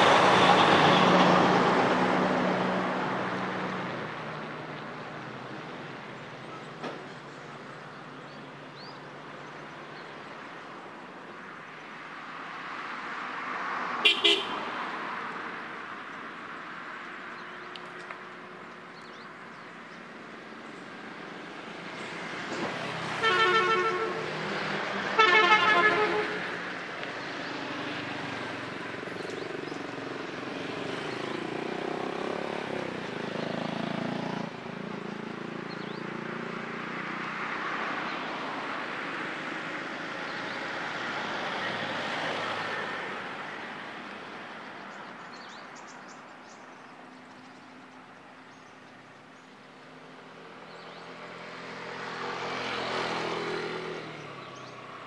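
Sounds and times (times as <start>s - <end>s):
motorbikes and cars passing: 0.0s - 55.0s
vehicle horn honking: 14.0s - 14.6s, 23.2s - 24.3s, 25.2s - 26.4s.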